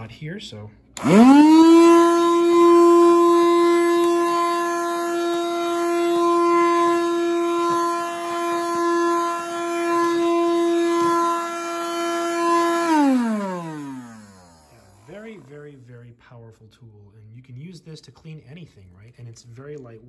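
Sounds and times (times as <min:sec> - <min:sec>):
handheld vacuum motor whine: 0:01.0 - 0:15.4.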